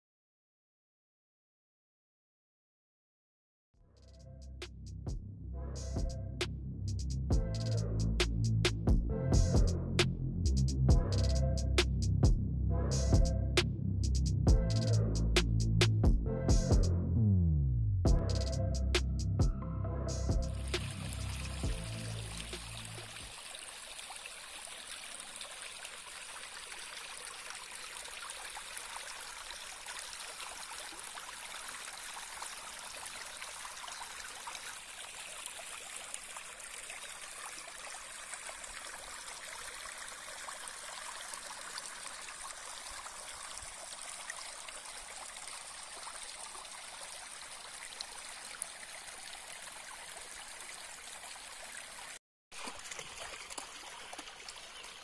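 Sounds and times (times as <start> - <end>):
stream trickling over stones: 20.5 - 55.0.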